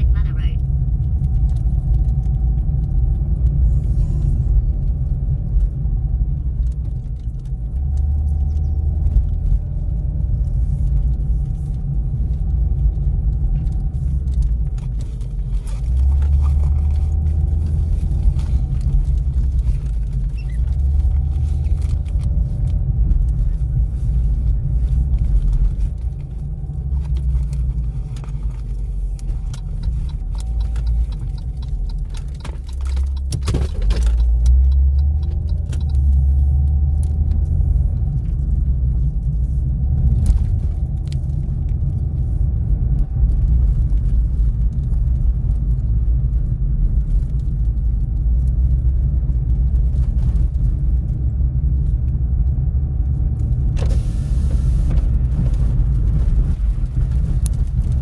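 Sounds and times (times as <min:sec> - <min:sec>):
car engine and tyre rumble: 0:00.0 - 0:58.0
clicks and rattles: 0:24.8 - 0:38.3.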